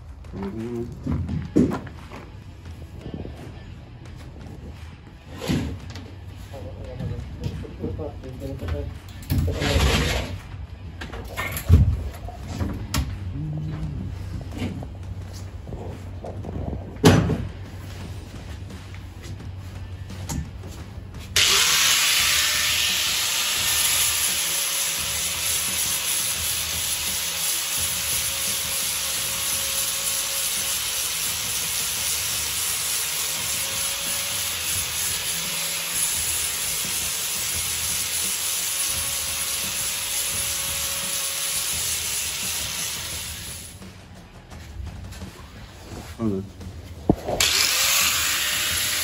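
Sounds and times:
angle grinder grinding paint: 21.2s - 43.8s, 47.2s - 49.0s
angle grinder motor whine: 21.4s - 24.2s, 47.4s - 49.0s.

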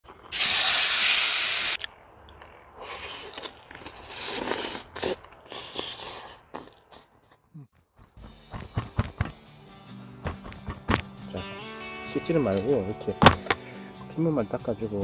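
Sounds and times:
meat sizzling in a hot pan: 0.4s - 1.8s
person crunching and chewing: 1.8s - 7.4s.

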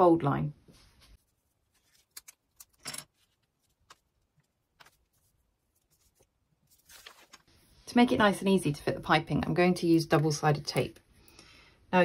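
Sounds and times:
paper rustling: 0.8s - 7.9s.

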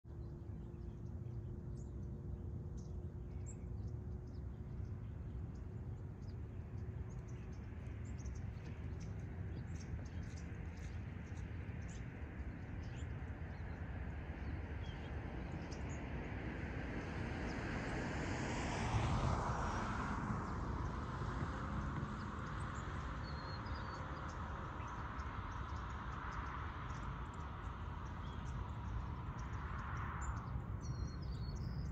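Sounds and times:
small birds chirping: 0.1s - 16.2s, 20.5s - 31.9s
steady low rumble: 19.7s - 31.9s.

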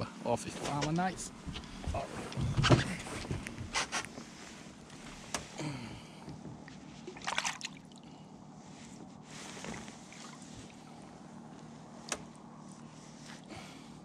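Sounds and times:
steady low hum: 0.0s - 14.0s
water lapping against boat: 6.3s - 8.4s, 9.1s - 11.2s.

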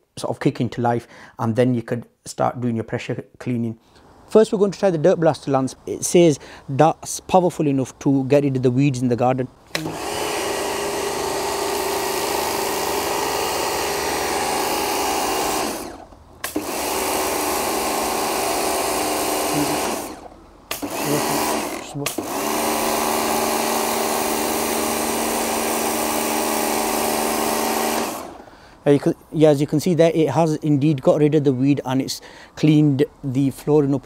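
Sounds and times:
electric pressure washer running: 9.7s - 28.5s.

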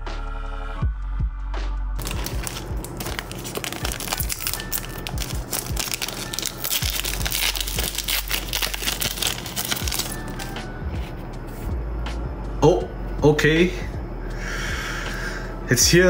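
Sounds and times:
background music: 0.0s - 16.0s
foil wrapper crinkling and tearing: 2.0s - 10.6s.

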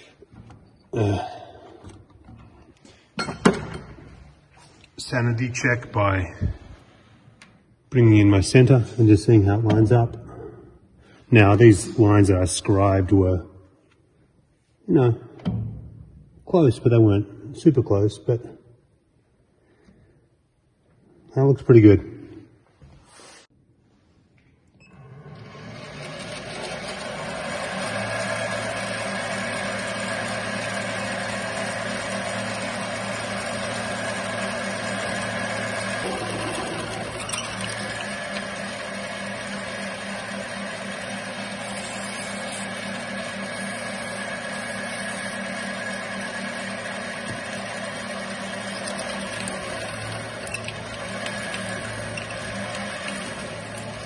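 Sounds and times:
metal lathe running with whine: 25.3s - 54.0s
drill boring into metal: 25.6s - 54.0s.

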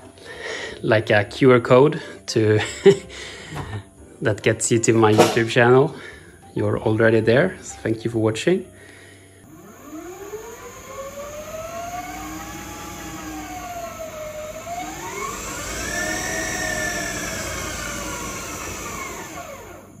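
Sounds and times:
electric motor whining: 9.4s - 20.0s.

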